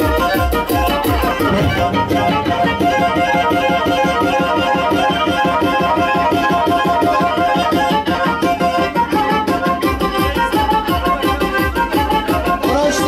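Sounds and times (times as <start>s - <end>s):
fast folk dance music: 0.0s - 13.0s
heavy bass beat: 1.0s - 4.3s.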